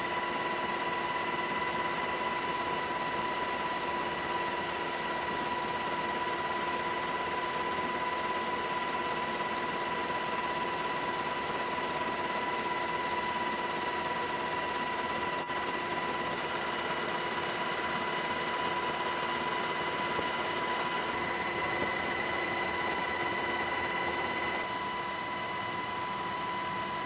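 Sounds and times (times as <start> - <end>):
helicopter cabin noise: 8.4 - 25.4.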